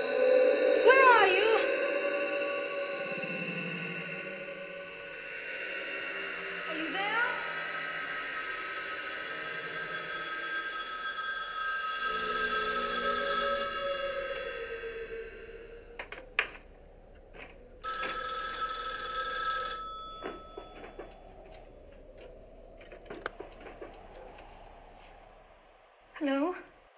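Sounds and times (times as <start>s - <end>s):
telephone bell ringing: 7.2s - 16.6s, 17.8s - 21.7s.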